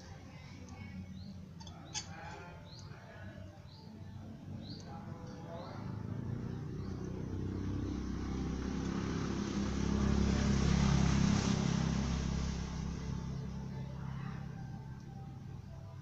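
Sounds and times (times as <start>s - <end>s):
motor vehicle passing by: 5.5s - 16.0s.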